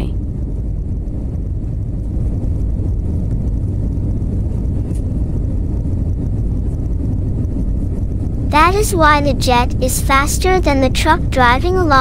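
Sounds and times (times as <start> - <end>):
aircraft engines rumbling: 0.0 - 12.0.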